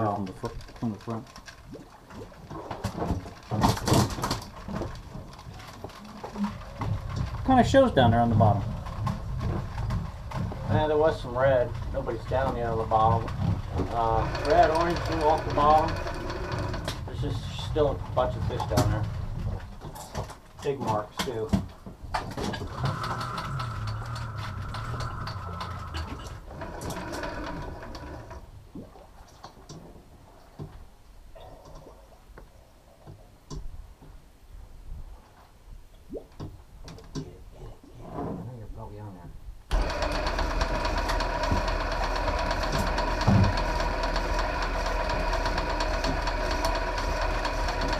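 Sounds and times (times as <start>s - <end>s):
rapid mechanical clicking: 3.4s - 19.4s, 22.4s - 28.4s, 39.7s - 47.9s
fishing reel motor hum: 6.1s - 17.4s, 22.6s - 28.5s, 39.7s - 47.9s.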